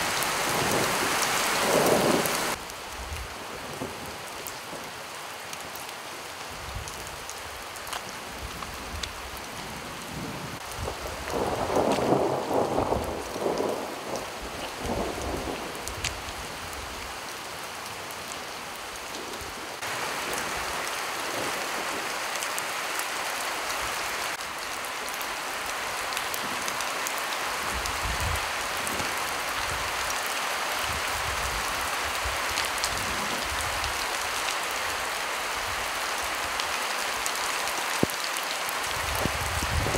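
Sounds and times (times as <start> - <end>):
steady rain falling: 0.0 - 39.9
thunder rumbling: 10.6 - 16.3, 39.0 - 39.9.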